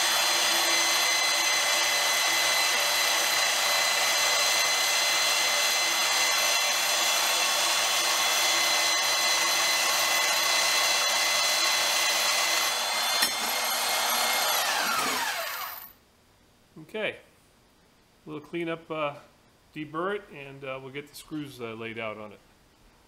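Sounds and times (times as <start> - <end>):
band saw motor whining: 0.0 - 15.9
saw blade rasping through metal: 0.0 - 15.9.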